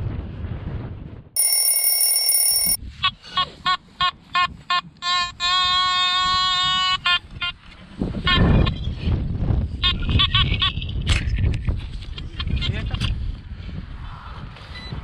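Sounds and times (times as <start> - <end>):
metal detector buzzing tone: 1.4 - 2.8
metal detector long steady tone: 1.4 - 2.8
metal detector short beeps: 1.4 - 2.8.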